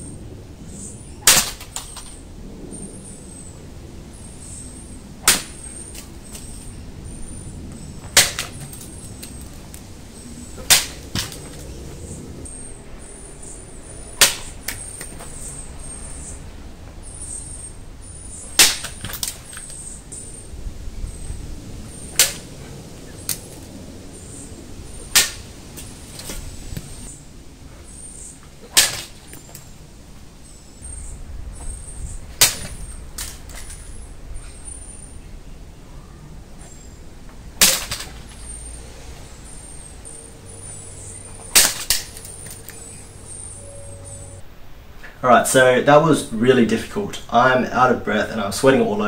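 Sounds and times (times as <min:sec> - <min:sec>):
blade cracking through bamboo: 0:01.2 - 0:02.2, 0:05.2 - 0:06.6, 0:08.1 - 0:09.8, 0:10.6 - 0:11.7, 0:14.2 - 0:15.3, 0:18.5 - 0:19.8, 0:22.1 - 0:22.5, 0:25.0 - 0:26.4, 0:28.7 - 0:29.7, 0:32.4 - 0:33.8, 0:37.6 - 0:38.3, 0:41.5 - 0:42.8.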